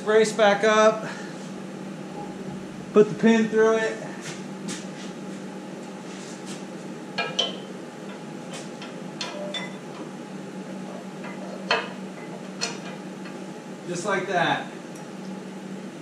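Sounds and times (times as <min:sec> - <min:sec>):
low hum: 0:01.1 - 0:04.3
metallic clinks and knocks: 0:07.2 - 0:07.7, 0:08.8 - 0:09.8.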